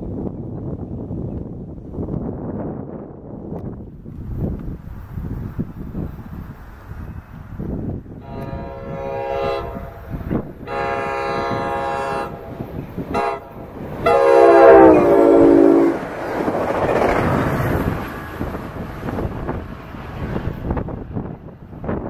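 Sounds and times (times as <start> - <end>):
train passing close: 3.8 - 22.0
train horn blasts: 8.2 - 16.1.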